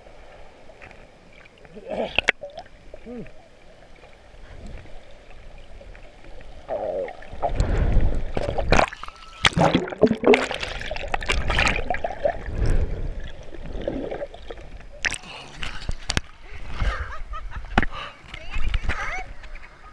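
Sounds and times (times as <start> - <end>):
water sloshing and gurgling: 0.0 - 18.0
bubbling: 1.4 - 15.9.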